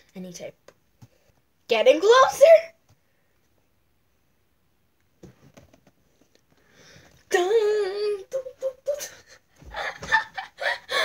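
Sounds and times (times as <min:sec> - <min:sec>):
girl singing wavering notes: 0:07.3 - 0:09.4.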